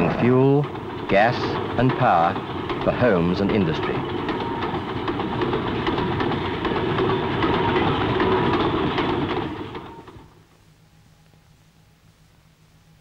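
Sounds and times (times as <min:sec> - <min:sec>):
wheels clattering over rail joints: 0:00.0 - 0:10.4.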